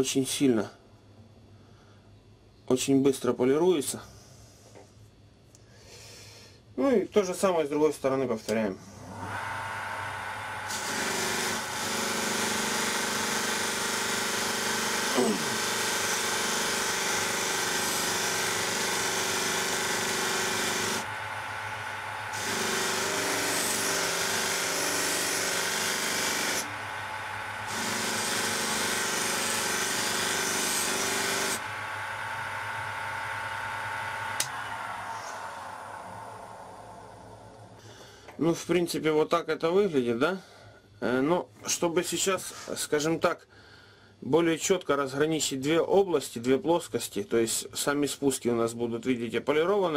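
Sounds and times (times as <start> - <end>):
bench polisher humming: 8.9 - 37.8
motor winding down: 9.0 - 37.8.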